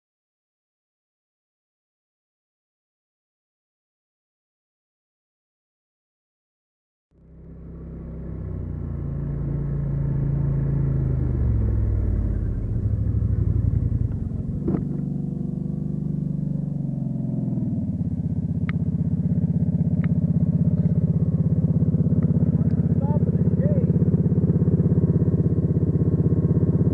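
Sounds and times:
quad engine slowing to idle: 0:07.2 - 0:26.9.

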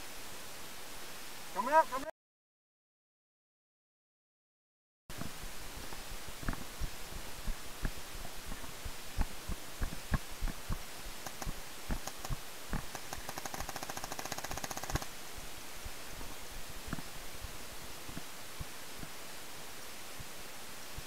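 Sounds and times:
rapid-fire paintball shots: 0:09.2 - 0:15.2
paintball marker shots: 0:11.2 - 0:15.1.

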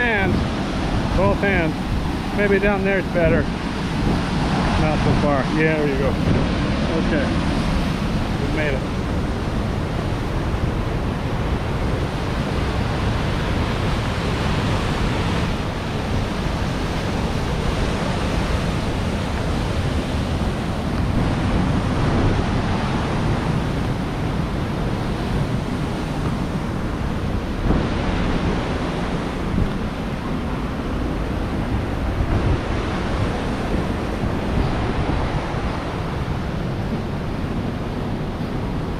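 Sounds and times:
stream and waterfall rushing: 0:00.0 - 0:38.9
wind buffeting microphone: 0:00.0 - 0:38.9.

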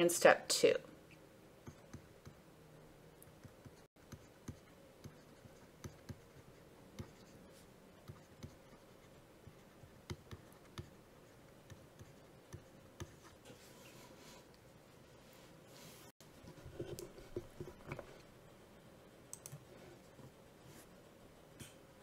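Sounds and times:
stylus tapping on pen tablet: 0:10.0 - 0:10.9.

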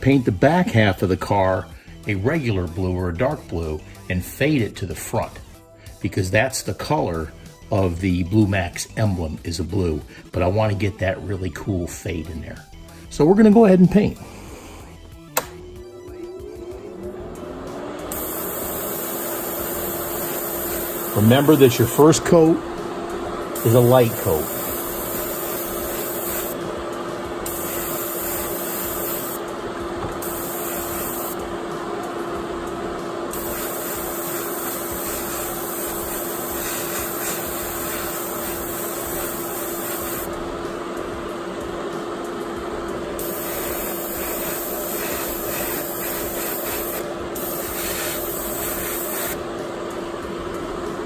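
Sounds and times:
airbrush spraying hiss: 0:18.1 - 0:22.1, 0:23.5 - 0:26.6, 0:27.4 - 0:29.4, 0:30.1 - 0:31.4, 0:33.3 - 0:40.4, 0:43.2 - 0:49.4.

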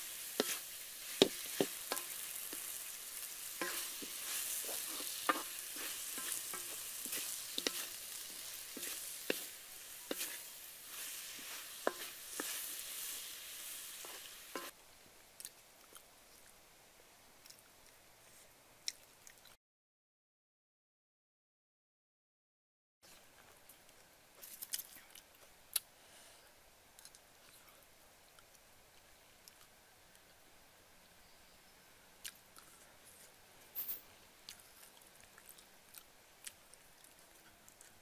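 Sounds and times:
food sizzling in a wok: 0:00.0 - 0:14.8
utensil clicking on pan: 0:00.4 - 0:13.1.

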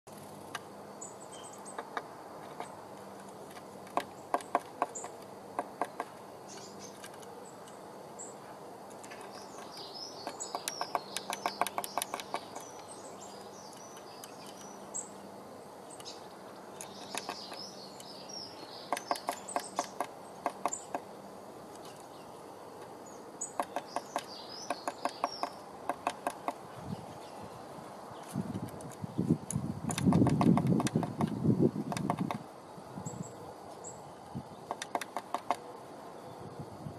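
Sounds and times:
birds chirping: 0:00.1 - 0:36.7
bird pecking wood: 0:01.7 - 0:07.8, 0:08.9 - 0:14.8, 0:16.7 - 0:17.7, 0:18.9 - 0:21.1, 0:22.8 - 0:26.8, 0:29.8 - 0:32.4, 0:34.6 - 0:35.7.

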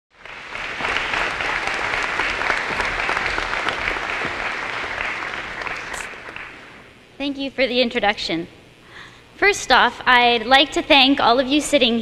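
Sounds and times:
audience applauding: 0:00.1 - 0:06.9.

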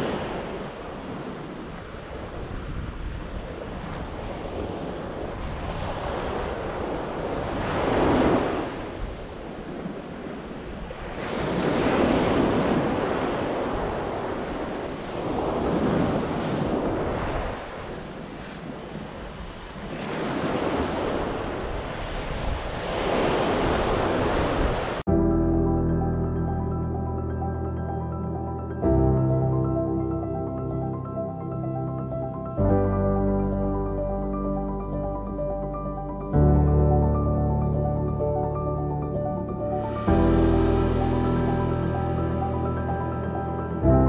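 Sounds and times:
sea waves breaking on beach: 0:00.0 - 0:25.1
wind on microphone: 0:00.0 - 0:25.2.

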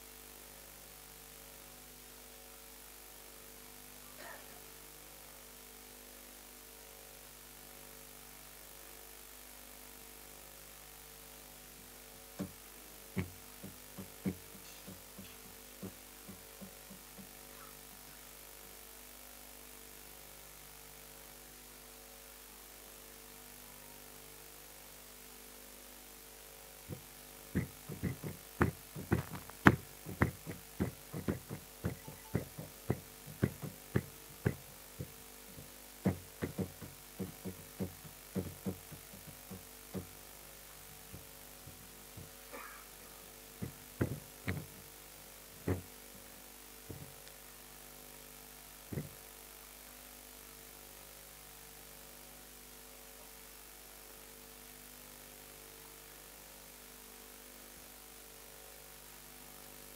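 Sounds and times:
steady low hum: 0:00.0 - 0:53.6
marker tapping on whiteboard: 0:12.4 - 0:12.6, 0:13.2 - 0:17.4, 0:27.6 - 0:40.2, 0:43.6 - 0:44.8, 0:45.6 - 0:45.9, 0:46.9 - 0:47.2, 0:48.9 - 0:49.2.

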